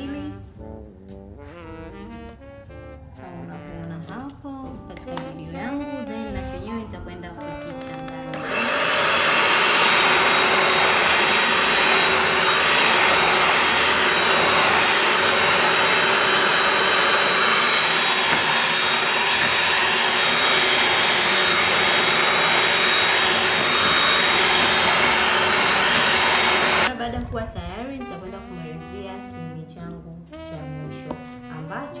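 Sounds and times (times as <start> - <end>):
electric hand mixer whining: 7.5 - 26.9.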